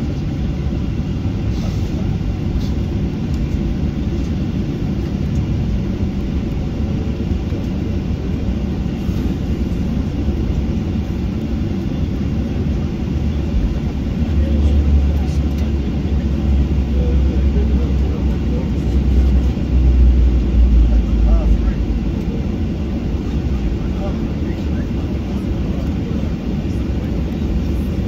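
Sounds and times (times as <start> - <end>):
jet engine rumble: 0.0 - 28.0.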